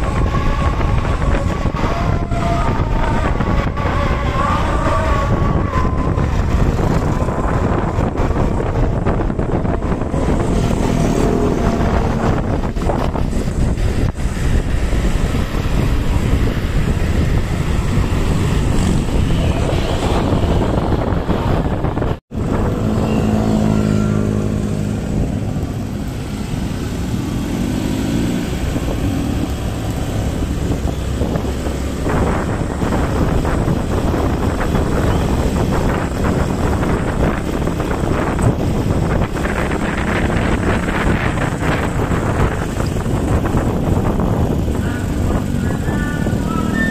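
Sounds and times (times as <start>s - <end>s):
engine hum: 0.0s - 46.9s
motorcycle engines passing: 0.0s - 46.9s
road and wind noise: 0.0s - 46.9s.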